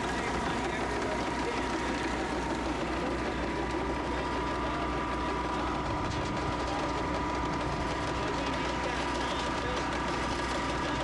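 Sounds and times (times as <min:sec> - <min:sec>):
steady machine whine: 0:00.0 - 0:11.0.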